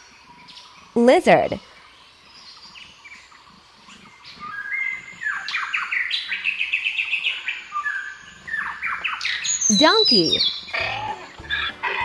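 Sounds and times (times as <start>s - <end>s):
small bird singing: 0.0s - 12.0s.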